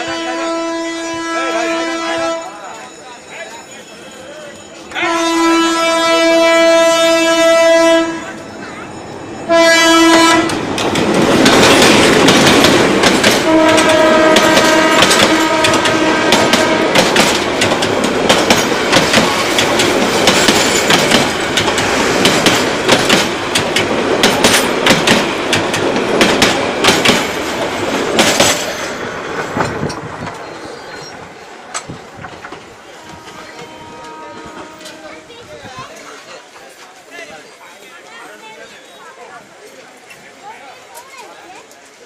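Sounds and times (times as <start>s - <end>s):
train horn blasts: 0.0s - 2.5s, 4.9s - 8.4s, 9.4s - 10.6s, 13.4s - 17.1s, 32.9s - 35.4s
diesel locomotive passing: 0.0s - 42.0s
train wheels clacking on rail joints: 9.6s - 37.1s.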